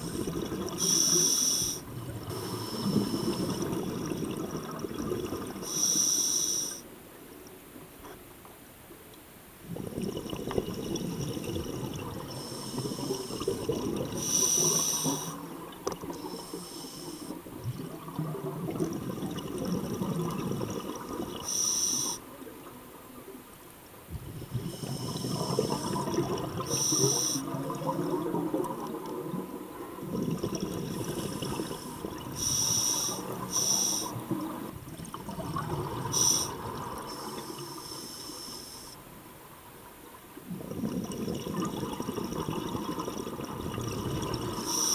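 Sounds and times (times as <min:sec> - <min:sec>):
regulator hissing inhalations: 0:00.0 - 0:03.6, 0:05.6 - 0:06.8, 0:12.3 - 0:15.5, 0:16.2 - 0:17.4, 0:21.5 - 0:22.3, 0:24.7 - 0:27.5, 0:31.1 - 0:34.4, 0:36.1 - 0:39.0, 0:44.6 - 0:44.9
bubbling exhaled air: 0:00.0 - 0:05.8, 0:09.6 - 0:22.1, 0:24.2 - 0:37.7, 0:40.5 - 0:44.9.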